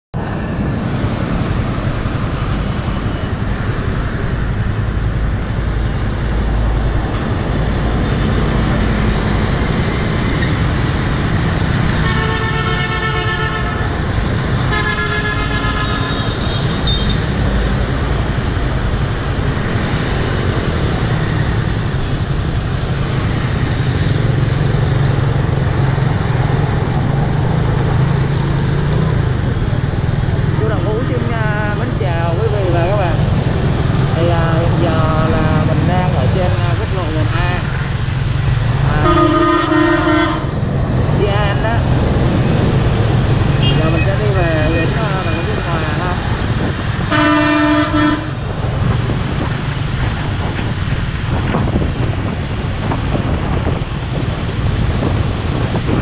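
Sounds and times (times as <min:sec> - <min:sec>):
scooter engine and road rumble: 0:00.1 - 0:56.0
vehicle horn honking: 0:12.0 - 0:13.9, 0:14.7 - 0:17.3, 0:39.0 - 0:40.5, 0:43.6 - 0:44.1, 0:47.1 - 0:48.4.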